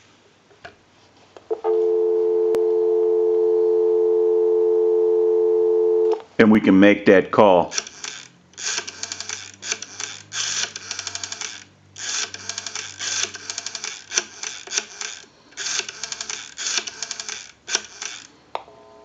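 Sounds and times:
rotary telephone dial clicking: 0:07.7 - 0:18.4.

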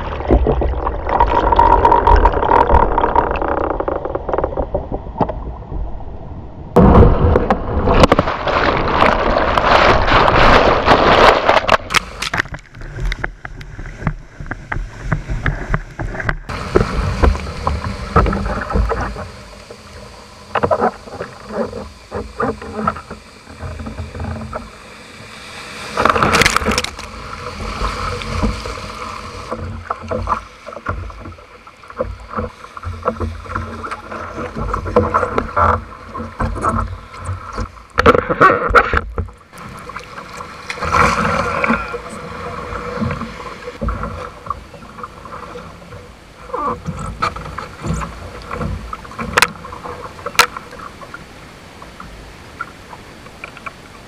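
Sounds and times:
surf rushing and sloshing: 0:05.6 - 0:54.0
water knocking against boat: 0:13.3 - 0:19.4.

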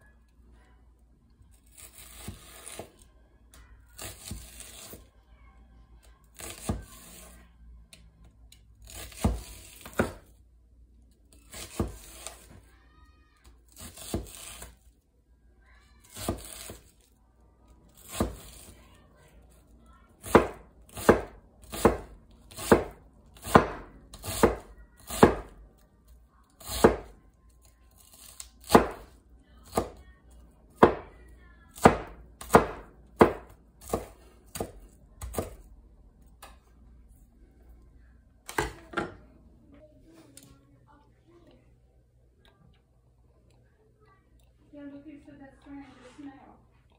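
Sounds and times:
knife chopping onion on board: 0:04.0 - 0:05.0, 0:06.4 - 0:07.3, 0:08.8 - 0:10.3, 0:11.5 - 0:12.6, 0:13.8 - 0:14.7, 0:18.0 - 0:18.7, 0:20.2 - 0:25.6, 0:26.6 - 0:27.2, 0:28.2 - 0:30.0, 0:30.7 - 0:35.7.

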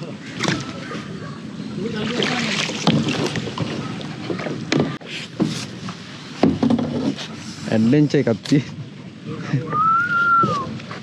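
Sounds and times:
water washing: 0:00.0 - 0:06.3
kayak paddles splashing: 0:00.0 - 0:11.0.

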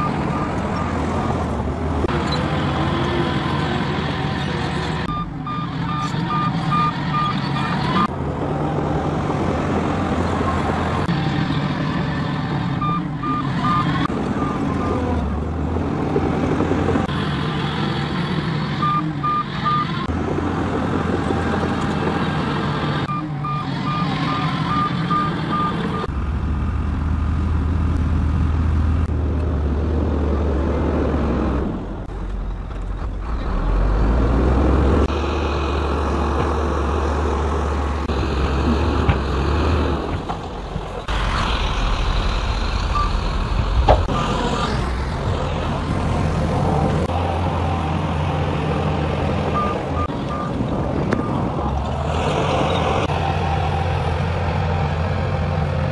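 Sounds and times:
bulldozer diesel engine: 0:00.0 - 0:55.9
reversing alarm beeping: 0:05.1 - 0:08.1, 0:12.8 - 0:15.0, 0:23.1 - 0:26.1, 0:42.9 - 0:43.3.

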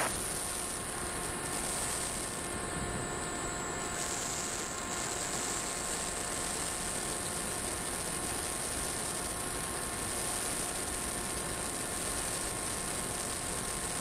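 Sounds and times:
faint thin steady tones: 0:00.0 - 0:14.0.

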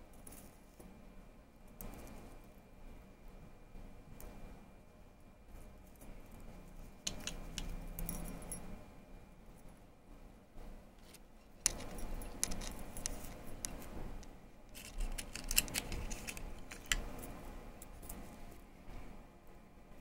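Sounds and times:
metal earrings clinking: 0:07.0 - 0:08.8, 0:11.6 - 0:13.9, 0:14.7 - 0:18.3.

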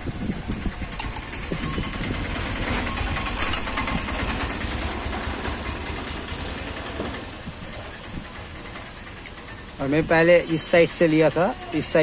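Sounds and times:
sharp metallic clatter: 0:00.8 - 0:07.3
metal clinks: 0:01.0 - 0:04.6
spanner set down: 0:03.3 - 0:04.1.

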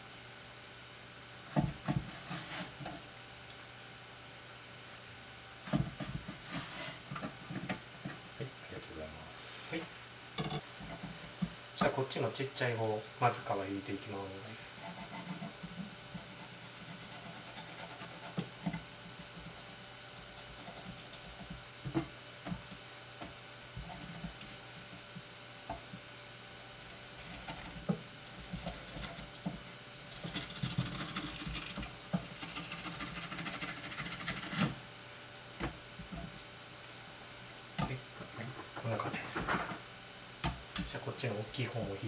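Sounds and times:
steady low hum: 0:00.0 - 0:42.0
knife scraping fish skin: 0:14.8 - 0:18.5.

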